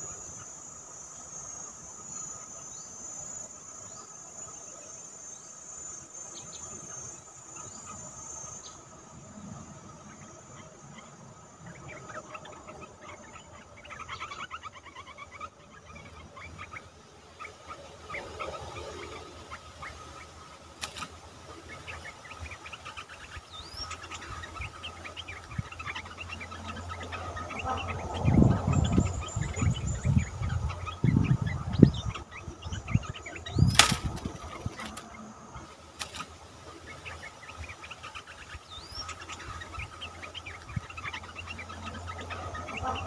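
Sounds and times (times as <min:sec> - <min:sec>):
bird chirps: 0:00.0 - 0:43.0
insect drone: 0:00.0 - 0:43.0
bird wings fluttering: 0:20.8 - 0:21.2, 0:33.6 - 0:35.2, 0:35.9 - 0:36.4.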